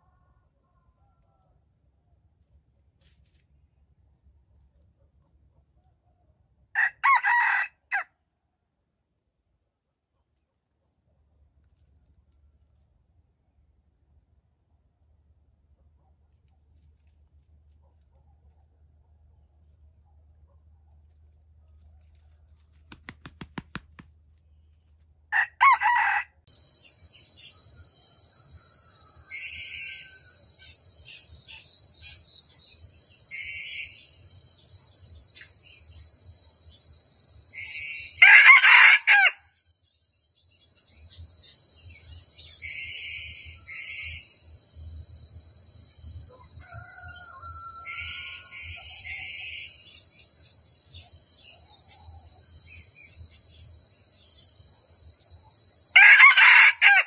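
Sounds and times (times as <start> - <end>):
rooster crowing: 6.8 - 8.1, 25.3 - 34.1, 37.5 - 39.5, 46.2 - 50.0, 55.9 - 57.0
high-pitched insect drone: 26.5 - 38.2, 39.8 - 56.1.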